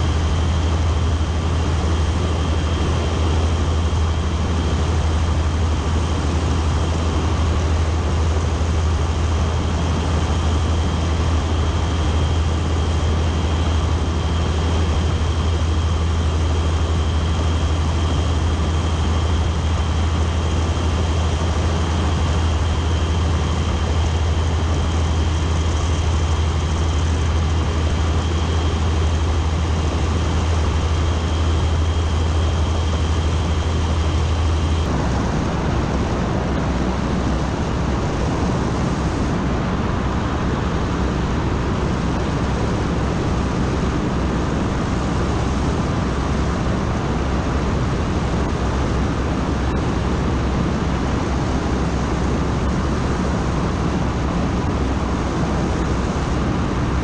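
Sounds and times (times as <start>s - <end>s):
aircraft engine and propeller drone: 0.0s - 57.0s.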